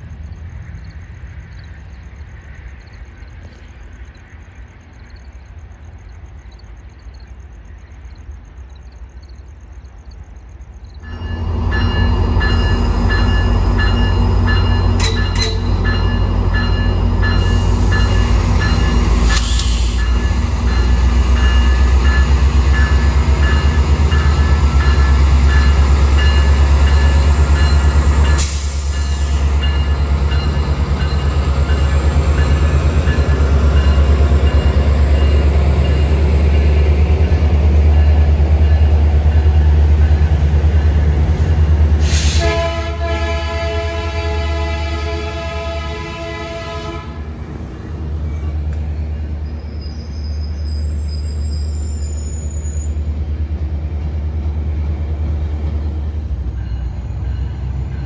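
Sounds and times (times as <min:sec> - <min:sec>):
diesel locomotive engine rumbling: 0:00.0 - 0:58.0
multi-tone train horn: 0:12.0 - 0:23.2, 0:42.1 - 0:47.4.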